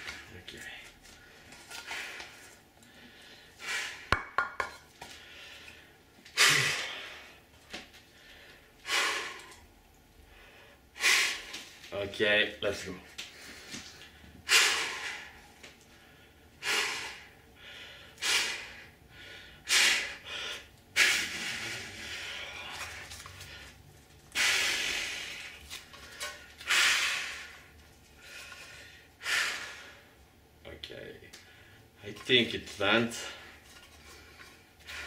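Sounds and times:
man breathing forcefully: 0:01.2 - 0:11.8, 0:13.3 - 0:30.2.

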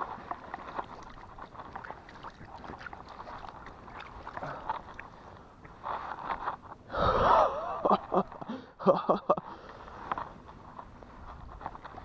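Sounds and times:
small crackles and ticks: 0:00.0 - 0:06.8, 0:09.6 - 0:12.0.

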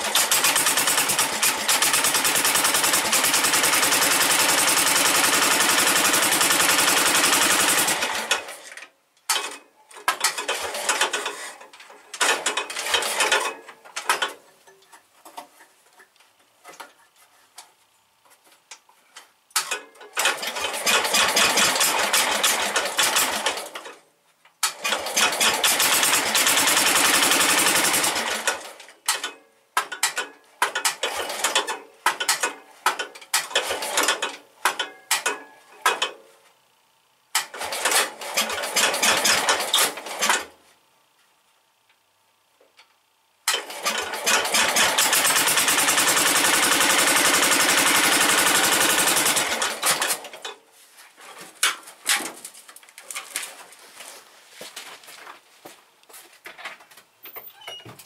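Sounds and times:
engine starter cranking: 0:00.0 - 0:14.3, 0:19.6 - 0:24.0, 0:24.6 - 0:29.3, 0:30.0 - 0:36.1, 0:37.4 - 0:40.5, 0:43.5 - 0:50.5.

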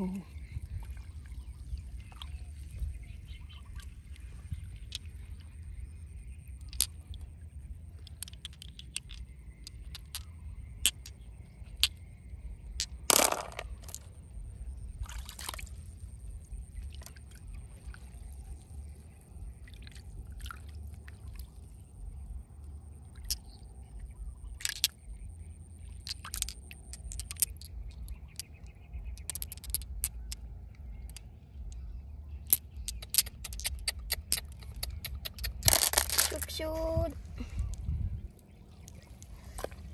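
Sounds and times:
stones clicking together: 0:04.8 - 0:05.4, 0:06.6 - 0:07.2, 0:07.9 - 0:14.1, 0:23.2 - 0:23.5, 0:24.5 - 0:25.0, 0:25.8 - 0:30.4, 0:31.0 - 0:31.8, 0:32.4 - 0:36.8.

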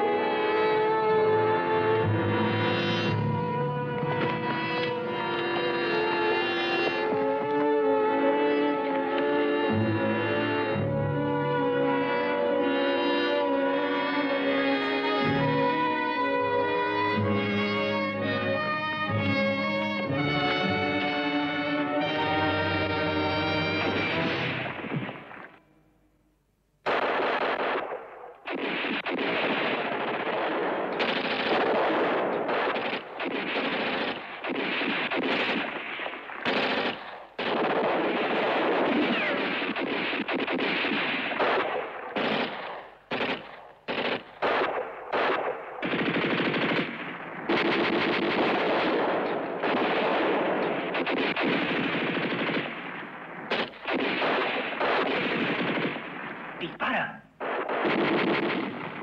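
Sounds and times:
automatic gunfire: 0:26.8 - 0:59.0.

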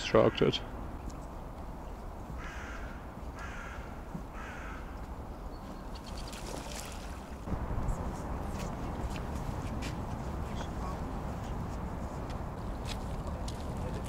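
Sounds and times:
crow cawing: 0:02.4 - 0:05.0.

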